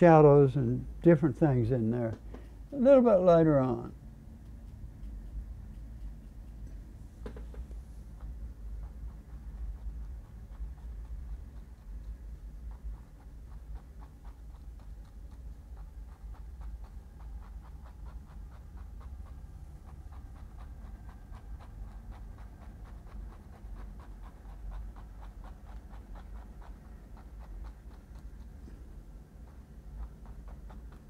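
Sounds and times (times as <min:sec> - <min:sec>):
steady low hum: 0:00.0 - 0:31.0
paintbrush scratching canvas: 0:04.5 - 0:31.0.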